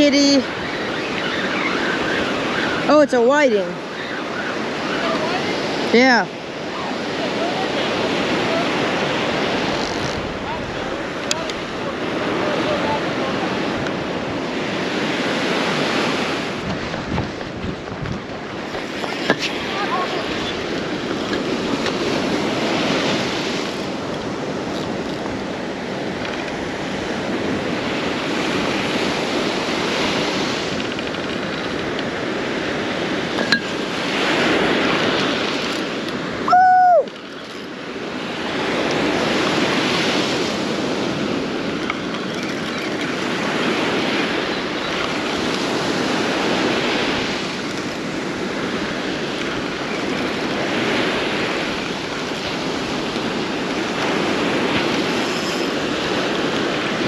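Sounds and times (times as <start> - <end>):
surf breaking on beach: 0.0 - 57.0
wind on microphone: 0.0 - 57.0.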